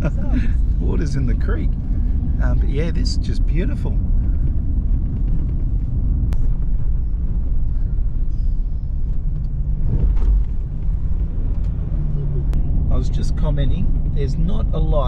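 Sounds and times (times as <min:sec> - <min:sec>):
vehicle driving on dirt road: 0:00.0 - 0:15.0
low thud: 0:08.9 - 0:12.9.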